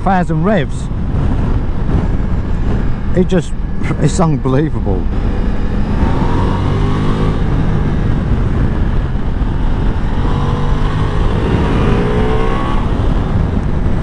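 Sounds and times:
wind rushing over microphone: 0:00.0 - 0:14.0
motorcycle engine revving: 0:05.0 - 0:14.0.

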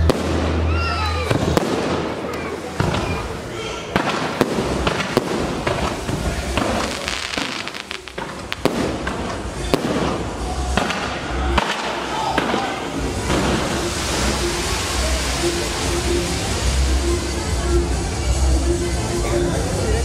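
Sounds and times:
fireworks bangs and crackles: 0:00.0 - 0:18.4.

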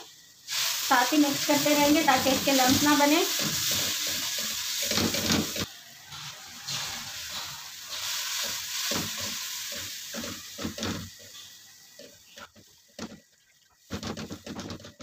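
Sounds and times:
roux sizzling in a pan: 0:00.0 - 0:14.0
spatula stirring and scraping: 0:02.5 - 0:13.2.

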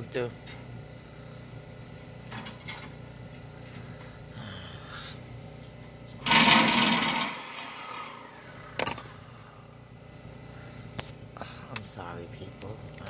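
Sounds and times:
reciprocating saw cutting steel: 0:06.2 - 0:08.8.

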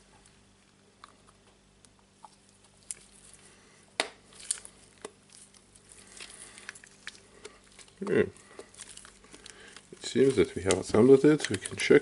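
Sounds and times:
plastic rubbing and rustling: 0:04.3 - 0:12.0.

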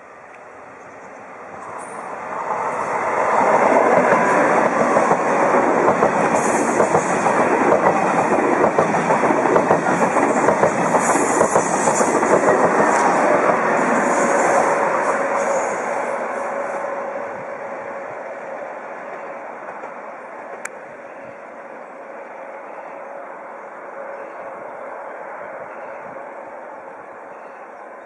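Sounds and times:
high-speed train passing: 0:00.0 - 0:28.0
rail clatter: 0:01.6 - 0:15.8.

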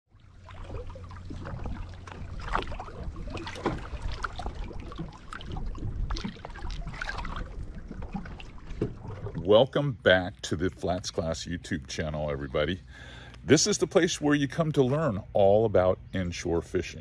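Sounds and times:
water slapping and splashing: 0:00.1 - 0:11.4
wind rumble on microphone: 0:00.2 - 0:09.5
fish thrashing at surface: 0:00.4 - 0:09.4.

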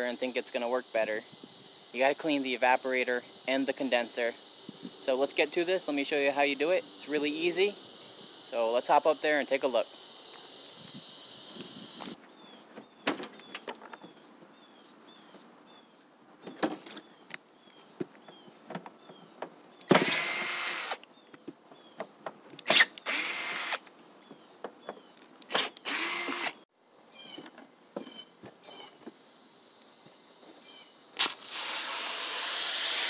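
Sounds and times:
high insect buzz: 0:00.0 - 0:15.9, 0:18.0 - 0:22.0, 0:22.6 - 0:27.3, 0:29.4 - 0:33.0
cordless drill spurts: 0:19.9 - 0:21.1, 0:22.6 - 0:23.8, 0:25.5 - 0:26.6, 0:31.2 - 0:33.0
sharp clicks: 0:25.4 - 0:26.6.

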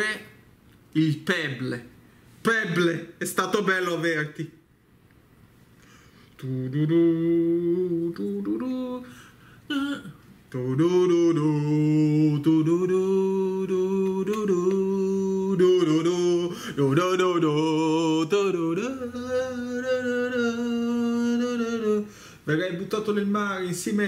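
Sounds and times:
man singing a solemn chant: 0:06.4 - 0:09.1, 0:09.7 - 0:22.6.

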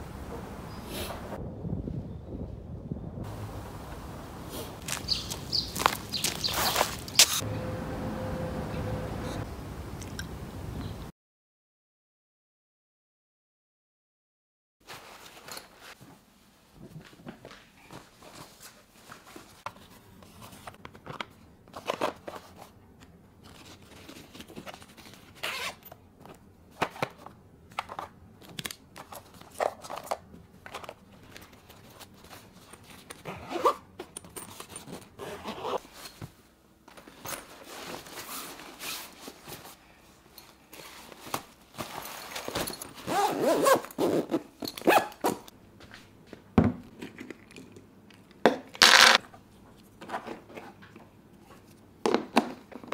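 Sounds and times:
clicks and rustles of handling: 0:16.8 - 0:33.3.

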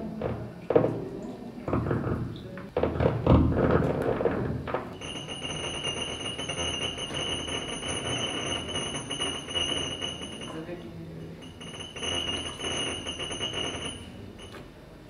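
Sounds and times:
utensils knocking in a bowl: 0:04.9 - 0:14.6.

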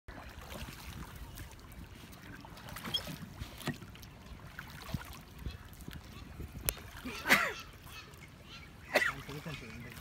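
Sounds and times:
water sloshing against boat hull: 0:00.1 - 0:10.0
wind rumbling on microphone: 0:00.4 - 0:07.2.

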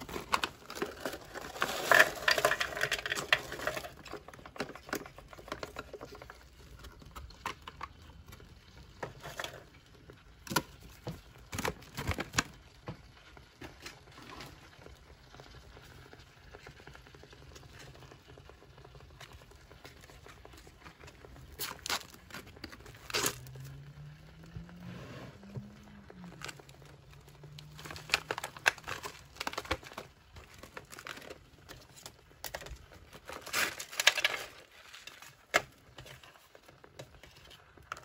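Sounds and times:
foil food pouch crinkling: 0:00.0 - 0:24.0, 0:25.7 - 0:38.0.

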